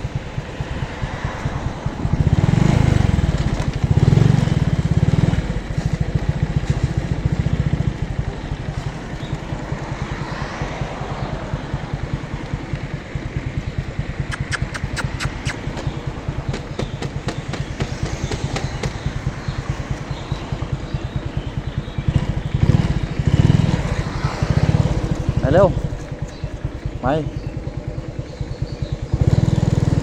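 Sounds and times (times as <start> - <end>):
small motorcycle engine running: 0.0 - 30.0
sharp clicks: 14.2 - 15.9.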